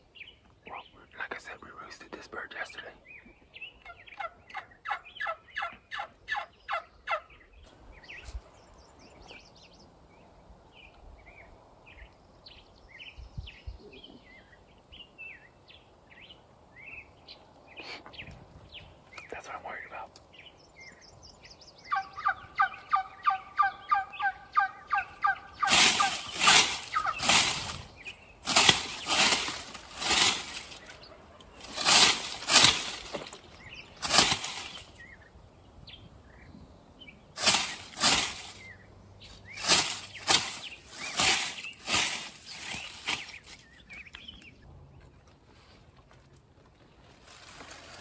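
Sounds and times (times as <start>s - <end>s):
turkey gobbling: 3.8s - 7.3s, 21.9s - 27.7s.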